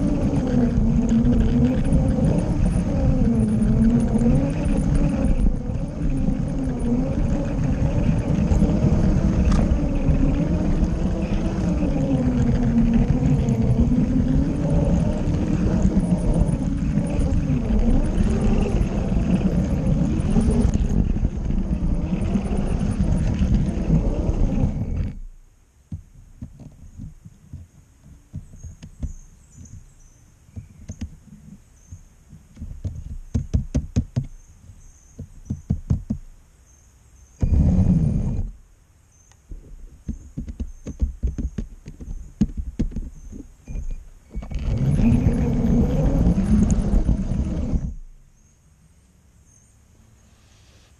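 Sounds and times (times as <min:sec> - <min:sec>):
toy train motor whining: 0:00.0 - 0:25.2, 0:43.8 - 0:48.0
wheels rattling over plastic track: 0:00.0 - 0:25.3, 0:39.6 - 0:48.2.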